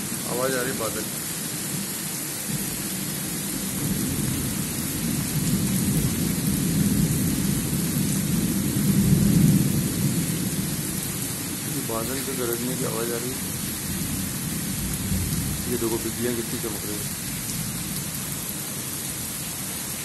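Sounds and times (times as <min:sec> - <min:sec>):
heavy rain hiss: 0:00.0 - 0:20.0
thunder rolling: 0:13.9 - 0:16.8.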